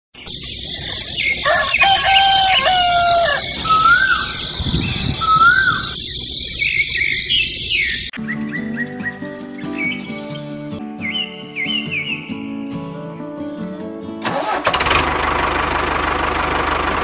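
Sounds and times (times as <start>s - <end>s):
short rising bird calls: 0.3s - 12.4s
rooster crowing: 0.9s - 6.0s
music: 8.2s - 14.7s.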